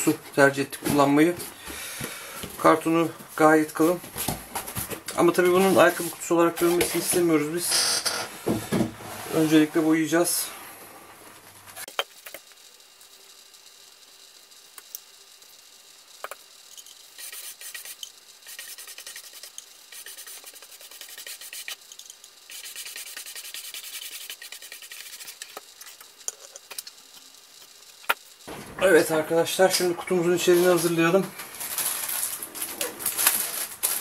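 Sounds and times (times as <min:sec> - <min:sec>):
paintbrush scrubbing cardboard: 0:17.2 - 0:21.9, 0:22.5 - 0:26.1.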